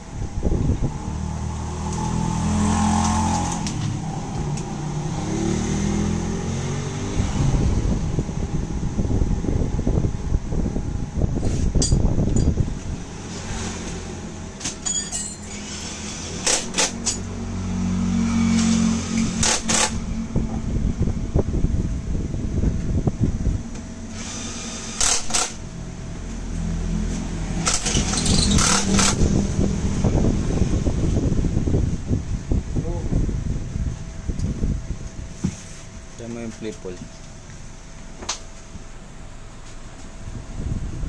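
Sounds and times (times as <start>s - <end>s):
low rumbling handling noise: 6.9s - 17.6s, 18.3s - 41.0s
low steady hum: 14.1s - 28.1s
metal tools clinking: 14.7s - 16.0s.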